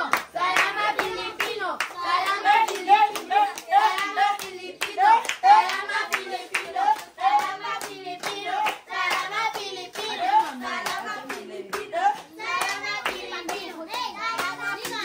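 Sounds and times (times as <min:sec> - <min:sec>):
hand clapping: 0:00.0 - 0:15.0
voices singing: 0:00.0 - 0:15.0.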